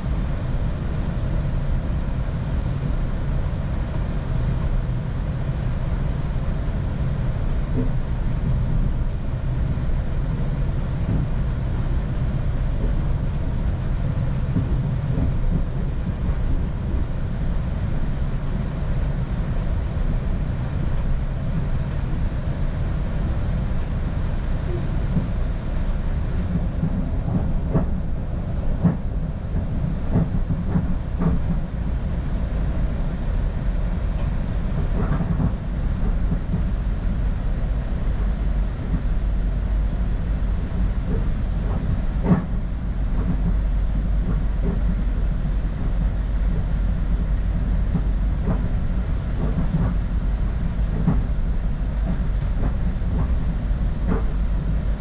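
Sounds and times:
train wheels rumbling on rail: 0.0 - 55.0
track clicks and knocks: 26.4 - 31.7, 41.1 - 42.6, 50.9 - 51.3, 52.0 - 54.4.

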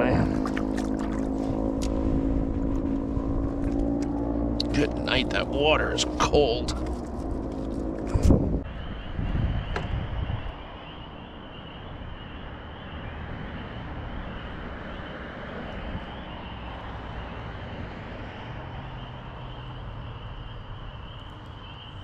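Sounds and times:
faint high-pitched hum: 0.0 - 9.7
wind rumbling on microphone: 0.0 - 22.0.

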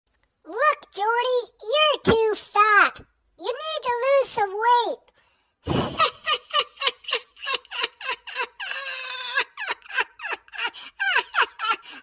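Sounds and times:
high-pitched child-like voice: 0.5 - 5.1.

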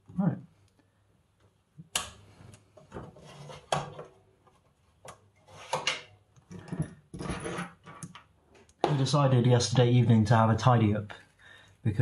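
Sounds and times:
hands knocking and rubbing parts: 2.5 - 9.2.

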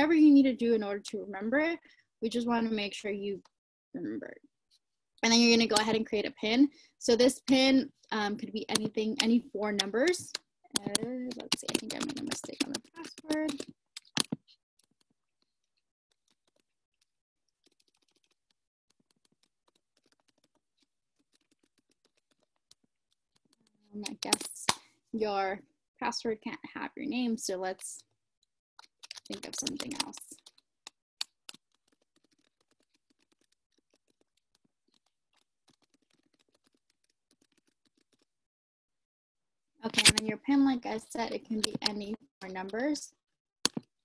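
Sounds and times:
faint keyboard typing: 8.4 - 24.7, 28.8 - 38.3, 39.9 - 43.0.

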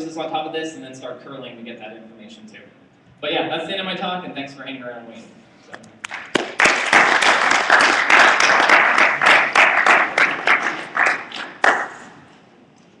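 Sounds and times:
audience applauding: 6.0 - 12.1.

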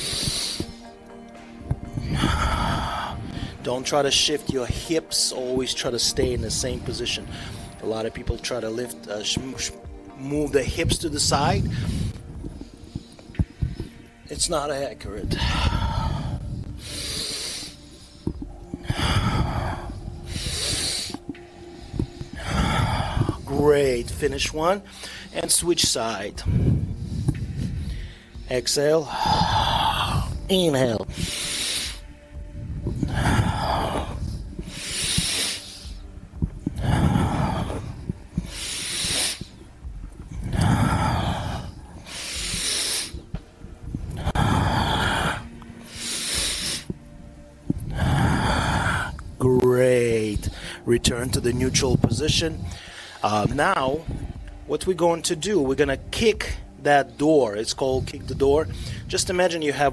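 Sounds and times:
loud airy breaths: 0.0 - 3.7, 6.4 - 7.9, 10.6 - 14.4, 15.2 - 24.2, 24.8 - 25.6, 26.4 - 49.3, 50.2 - 51.4, 52.3 - 53.3, 58.0 - 59.2.

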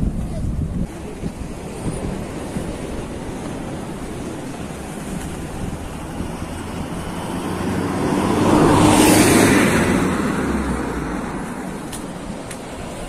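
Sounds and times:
motor vehicle passing: 3.0 - 13.0.

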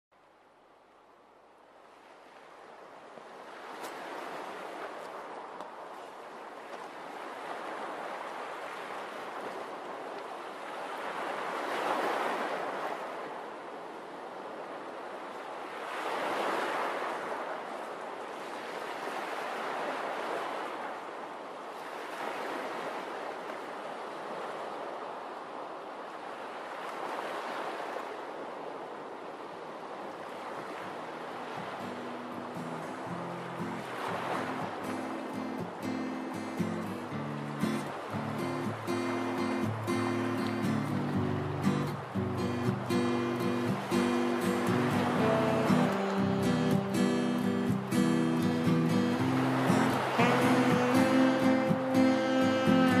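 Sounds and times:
ocean waves washing in: 1.0 - 53.0.

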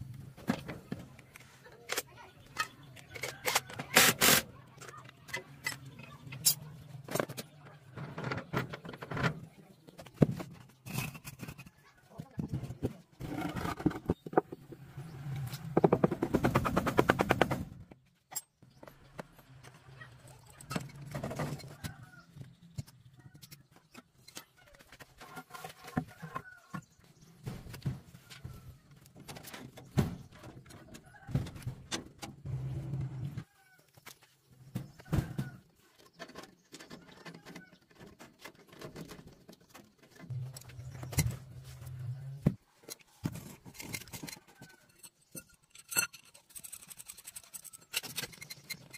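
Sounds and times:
metal clinks and knocks: 43.4 - 48.9.

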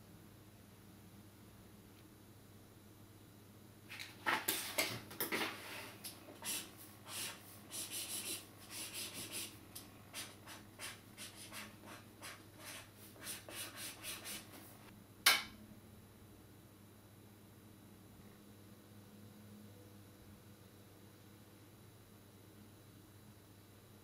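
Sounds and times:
pen scratching on paper: 6.4 - 9.5, 10.1 - 14.5.

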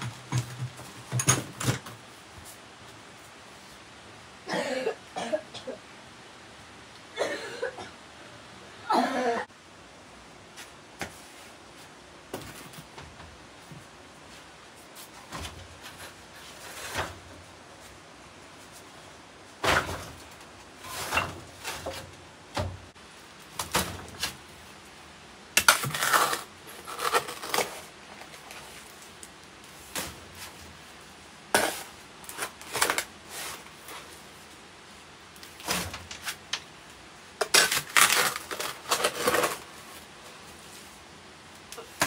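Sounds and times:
objects knocking and clattering: 0.0 - 2.0.

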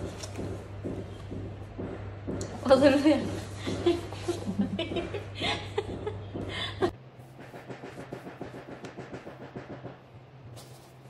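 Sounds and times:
people chuckling: 3.6 - 7.0.

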